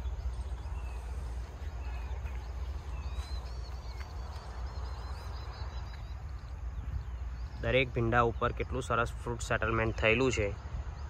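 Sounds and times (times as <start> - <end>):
faint bird chirps: 0.0 - 11.0
high twittering bird call: 0.0 - 11.0.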